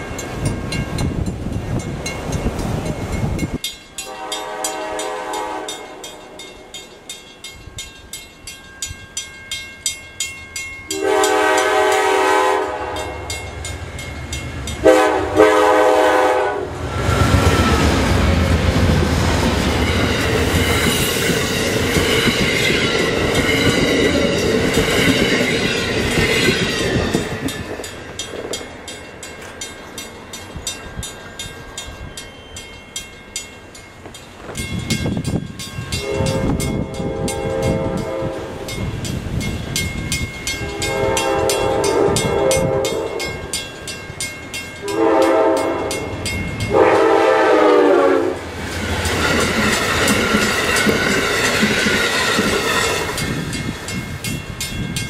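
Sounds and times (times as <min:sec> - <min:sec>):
crossing bell ringing: 0:00.0 - 0:55.0
train cars rushing over rails: 0:00.0 - 0:55.0
train horn blasts: 0:04.0 - 0:06.4, 0:10.9 - 0:13.4, 0:14.8 - 0:18.0, 0:35.9 - 0:38.7, 0:40.6 - 0:43.5, 0:44.8 - 0:48.5.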